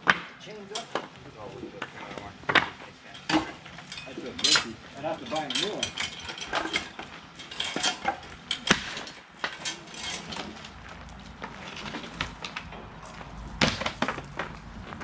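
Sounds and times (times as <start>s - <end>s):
sharp metal knocks: 2.5s - 10.6s
chains clinking and clanking: 3.0s - 15.0s.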